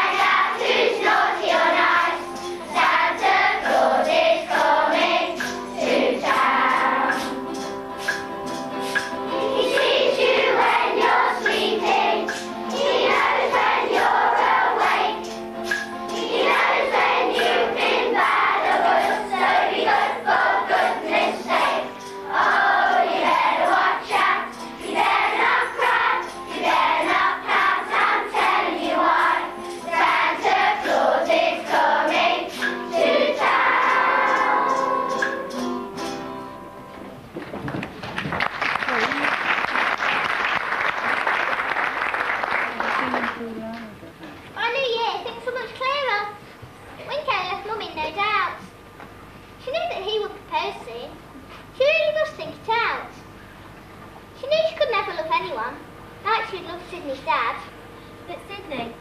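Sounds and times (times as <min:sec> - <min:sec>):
children's choir singing: 0:00.0 - 0:08.2, 0:08.8 - 0:36.2
musical accompaniment: 0:00.0 - 0:39.2.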